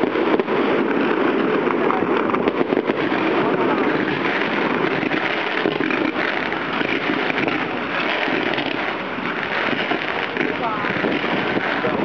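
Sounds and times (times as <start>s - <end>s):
fireworks crackling: 0.0s - 12.0s.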